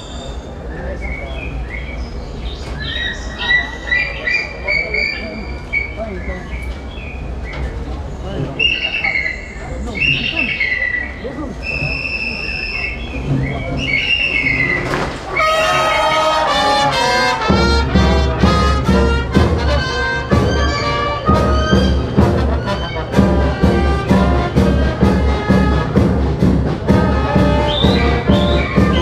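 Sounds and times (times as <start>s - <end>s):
brass band playing: 14.8s - 29.0s
heavy bass: 15.8s - 29.0s
steady drum beat: 16.0s - 29.0s.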